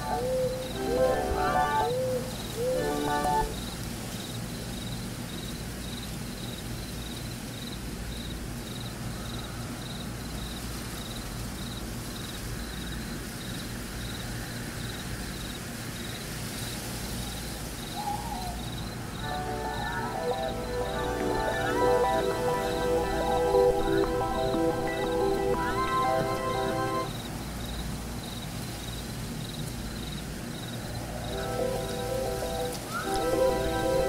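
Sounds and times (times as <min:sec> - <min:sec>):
short musical notes: 0:00.0 - 0:02.0, 0:02.6 - 0:03.6, 0:19.2 - 0:27.1, 0:31.4 - 0:34.0
low background hiss: 0:00.0 - 0:34.0.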